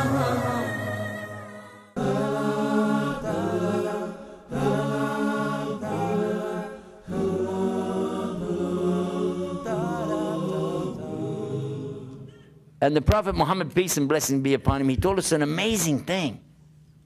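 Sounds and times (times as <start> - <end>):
unaccompanied chanting voices: 0.0 - 12.4.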